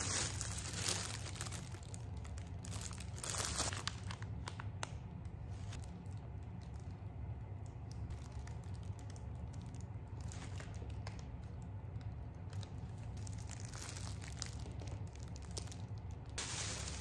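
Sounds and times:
plastic and paper bags crinkling: 0.0s - 4.7s, 8.1s - 17.0s
steady low hum: 0.0s - 17.0s.

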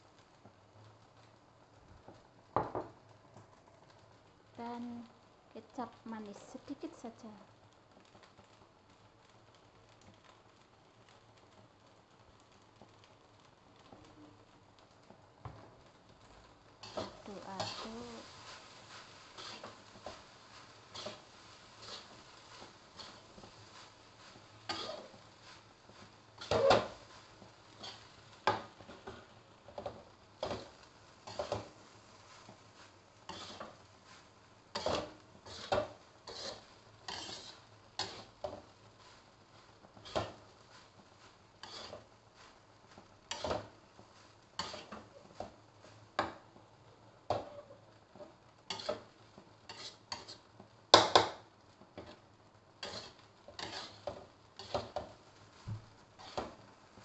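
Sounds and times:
spatula scraping a wok: 16.2s - 46.6s, 47.2s - 57.0s.

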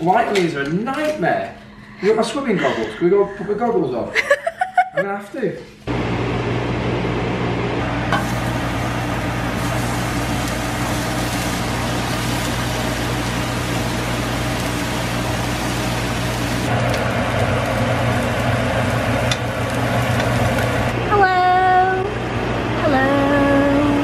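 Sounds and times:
vent fan humming: 0.0s - 24.0s
gas burner hissing: 7.8s - 21.0s.

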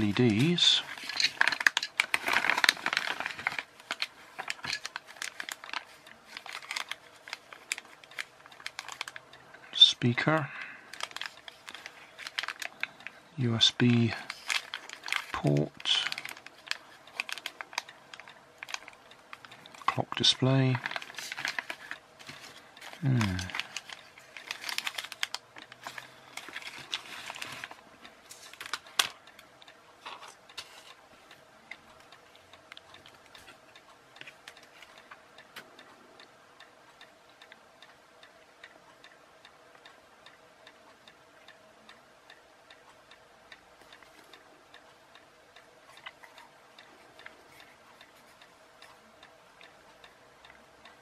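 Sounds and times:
plastic bags crinkling: 0.0s - 9.2s, 10.9s - 13.1s, 13.9s - 20.1s, 20.7s - 29.2s
faint regular ticking: 0.0s - 51.0s.

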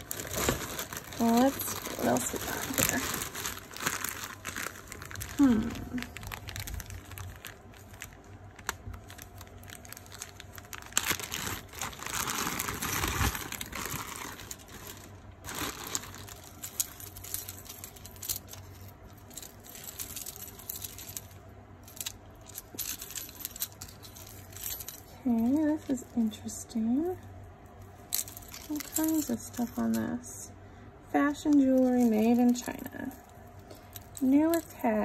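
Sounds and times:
packaging crinkling and rustling: 0.0s - 26.0s, 28.1s - 30.1s
clinks of metal and beads: 13.4s - 26.1s, 28.1s - 30.2s.

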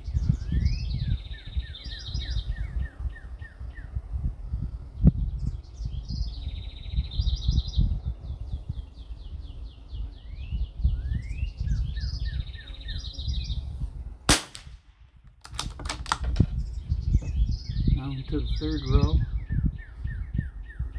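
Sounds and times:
songbird singing: 0.0s - 20.9s
wind rumbling on microphone: 0.0s - 20.9s
rifle shot: 14.3s - 16.3s.

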